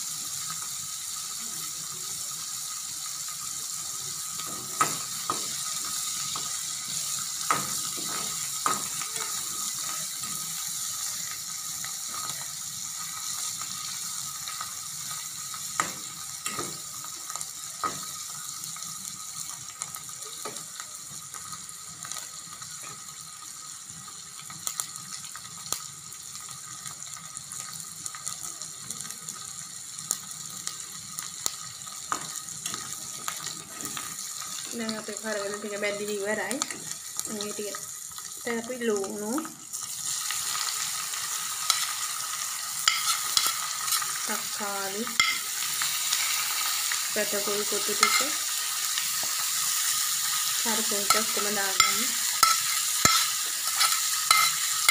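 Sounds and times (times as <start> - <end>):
fish sizzling in oil: 0.0 - 54.9
metal ladle scraping wok: 42.9 - 44.2, 48.0 - 48.4, 51.1 - 54.9.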